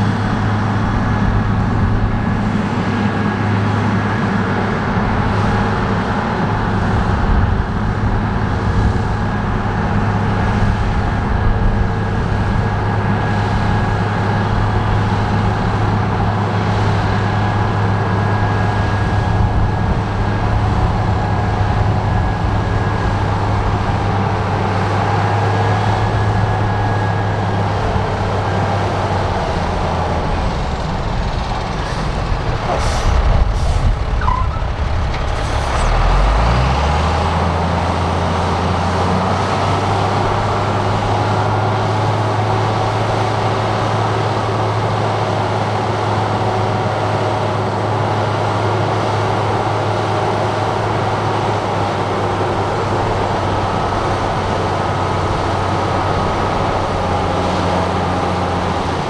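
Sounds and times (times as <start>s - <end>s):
diesel machinery engine hum: 0.0s - 59.0s.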